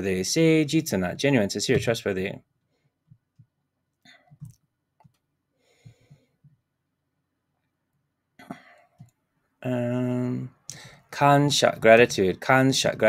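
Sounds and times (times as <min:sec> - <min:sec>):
soft breath out: 0:05.6 - 0:06.6, 0:10.7 - 0:11.1.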